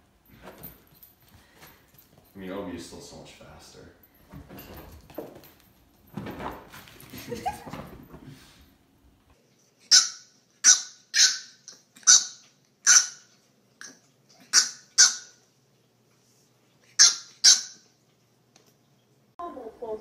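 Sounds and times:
puppy yapping: 9.9s - 15.4s, 16.9s - 17.9s.

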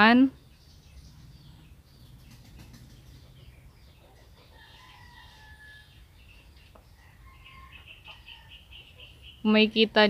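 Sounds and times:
faint poultry calls: 2.4s - 9.6s.

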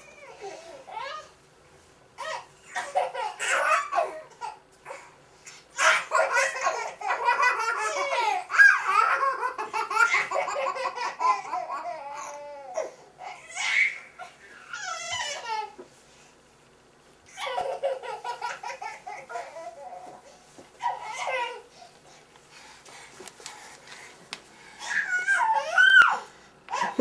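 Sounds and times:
toddlers laughing: 2.2s - 5.0s, 5.8s - 14.2s, 17.3s - 20.2s.

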